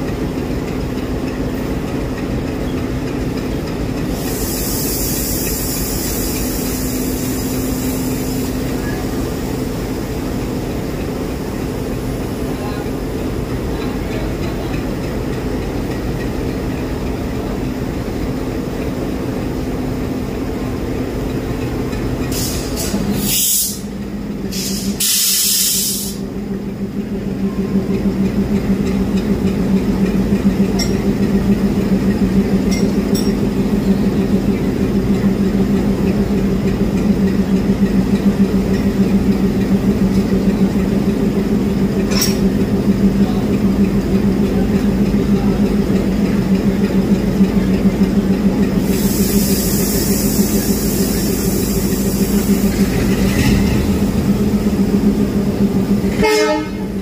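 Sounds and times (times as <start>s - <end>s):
diesel locomotive engine idling: 0.0s - 57.0s
air brake hissing: 4.1s - 8.5s, 22.3s - 23.9s, 24.5s - 26.2s, 48.8s - 54.0s.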